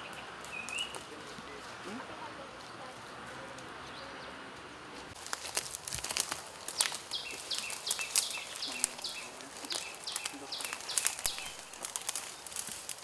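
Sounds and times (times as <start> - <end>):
bird chirping: 0.0 - 1.5, 3.8 - 4.8, 6.7 - 12.6
footsteps crunching on dry leaves: 0.0 - 13.0.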